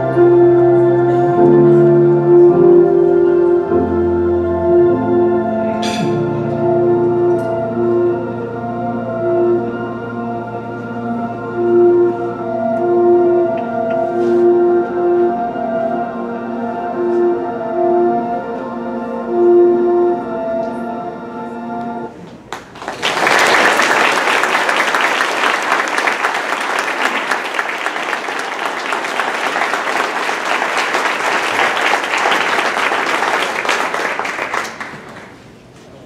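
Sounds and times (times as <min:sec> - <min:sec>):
background music held notes: 0:00.0 - 0:22.2
people applauding: 0:22.3 - 0:35.6.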